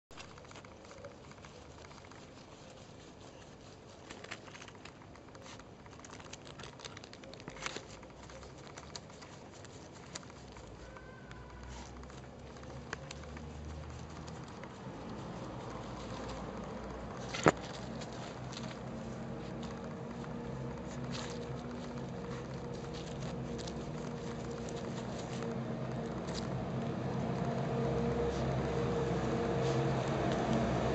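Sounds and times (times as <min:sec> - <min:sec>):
puppy paws scratching soil: 0:00.1 - 0:30.9
low hum: 0:10.9 - 0:30.9.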